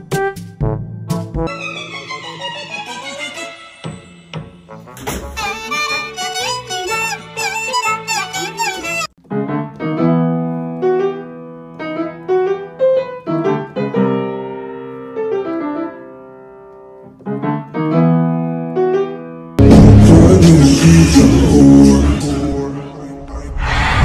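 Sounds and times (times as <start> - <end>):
piano music: 0.0 - 23.2
loud burst of noise: 23.4 - 24.0.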